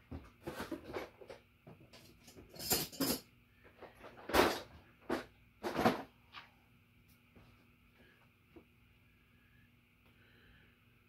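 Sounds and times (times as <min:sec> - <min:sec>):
tools clattering and rustling: 0:00.1 - 0:06.2.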